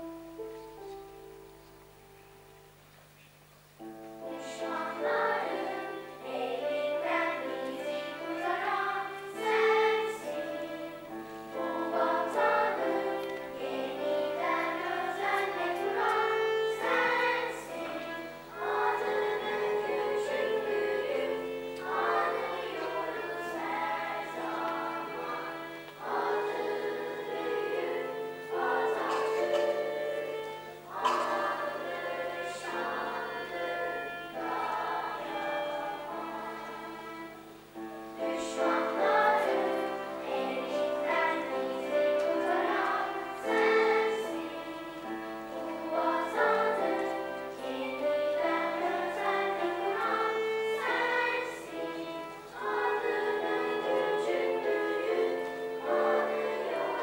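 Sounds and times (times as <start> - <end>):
children's choir singing: 3.8 - 57.0
violin: 3.8 - 57.0.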